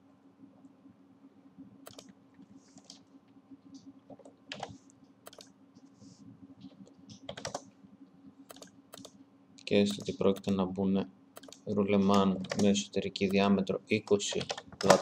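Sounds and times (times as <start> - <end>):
steady low hum: 0.0 - 15.0
mouse clicks: 1.8 - 2.1, 5.3 - 5.5, 8.5 - 9.2, 11.4 - 11.7
keyboard keystrokes: 1.9 - 2.1, 5.3 - 5.5, 7.2 - 7.7, 8.5 - 9.1, 11.4 - 12.7.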